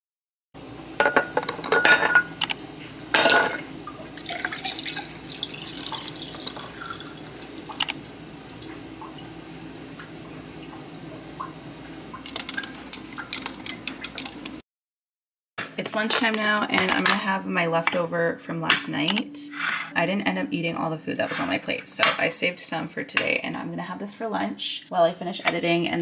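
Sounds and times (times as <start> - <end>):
liquid pouring into glass: 4.0 - 8.0.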